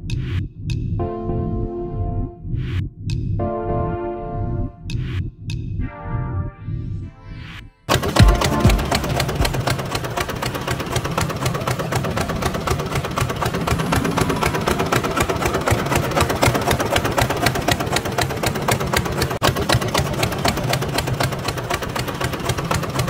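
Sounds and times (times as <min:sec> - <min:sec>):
motor running with fast clatter: 0:07.9 - 0:23.0.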